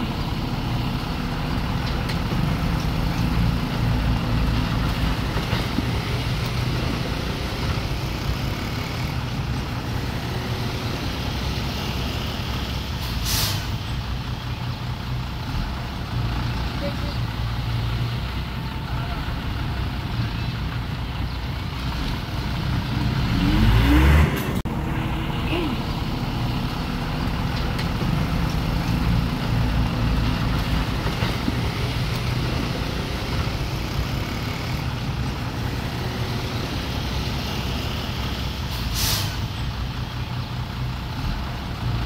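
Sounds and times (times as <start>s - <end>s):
diesel machinery running: 0.0s - 42.0s
short hiss: 13.0s - 13.8s, 38.7s - 39.5s
engine revving: 21.7s - 39.0s.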